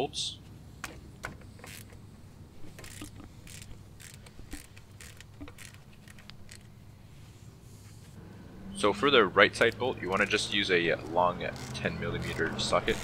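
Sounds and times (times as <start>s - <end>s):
ratchet clicking: 1.5s - 2.0s, 2.7s - 6.7s, 11.4s - 13.0s.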